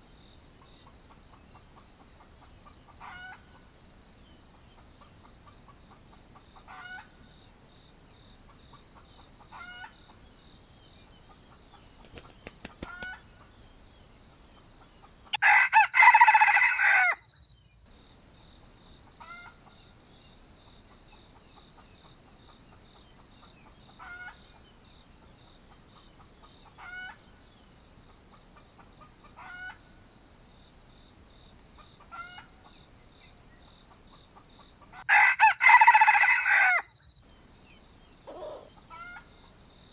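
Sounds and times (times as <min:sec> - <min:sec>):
short clucking calls: 0:11.8 - 0:13.2, 0:38.3 - 0:39.2
rooster crowing: 0:15.3 - 0:17.2, 0:35.1 - 0:36.9.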